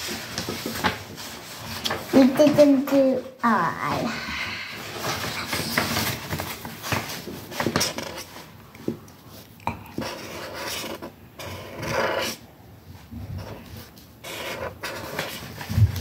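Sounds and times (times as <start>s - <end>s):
pen scratching on paper: 7.6s - 8.3s, 9.9s - 12.4s, 13.4s - 15.6s.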